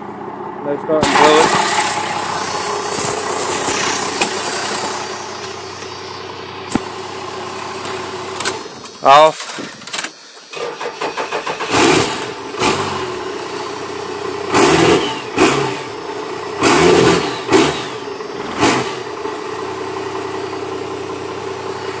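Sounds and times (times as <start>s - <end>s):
diesel engine cranking and revving: 0.0s - 22.0s.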